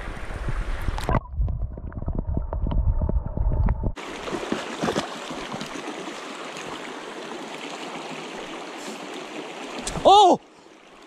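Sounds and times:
stream running over rocks: 0:04.0 - 0:11.0.

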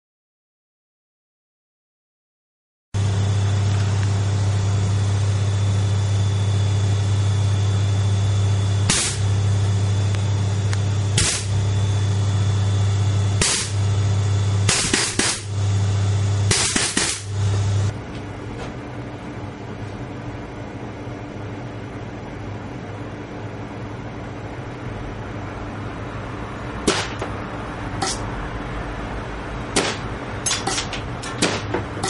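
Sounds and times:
loud low hum: 0:03.0 - 0:32.0
sharp compressed air bursts: 0:08.8 - 0:09.3, 0:11.2 - 0:11.6, 0:13.4 - 0:13.9, 0:14.6 - 0:15.6, 0:16.5 - 0:17.4, 0:28.0 - 0:28.3, 0:29.8 - 0:31.7.

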